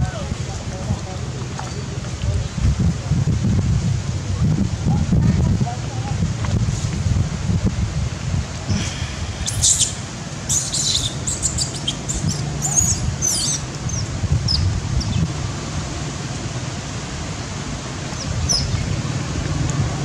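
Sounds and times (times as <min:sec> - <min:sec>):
animal chirps and squeals: 0:09.4 - 0:14.6.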